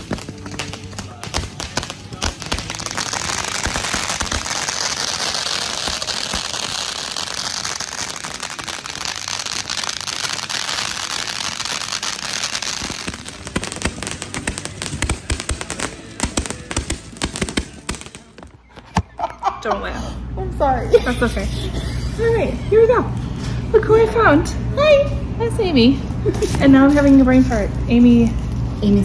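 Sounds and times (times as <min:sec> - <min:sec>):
fireworks crackling: 0:00.0 - 0:19.1
fireworks popping and banging: 0:00.0 - 0:19.2.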